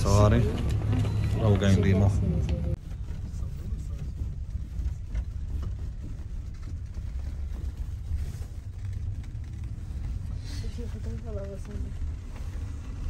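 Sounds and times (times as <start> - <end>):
cable car low rumble: 0.0 - 13.0.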